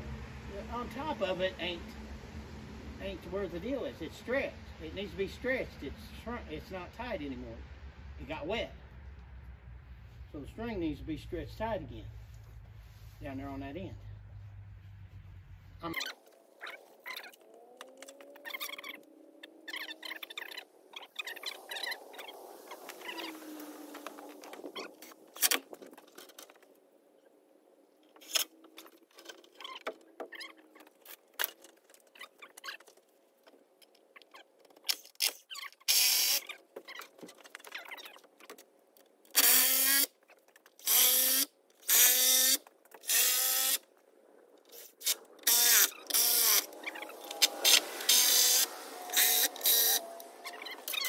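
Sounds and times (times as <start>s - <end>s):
power drill driving into wood: 35.9s - 36.4s, 39.4s - 40.1s, 40.8s - 43.8s, 45.0s - 46.7s, 47.3s - 50.0s.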